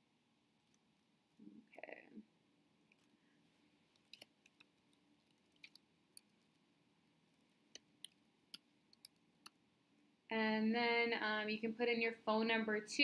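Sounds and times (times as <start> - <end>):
keyboard and mouse clicks: 4.0 - 6.6, 7.3 - 9.6.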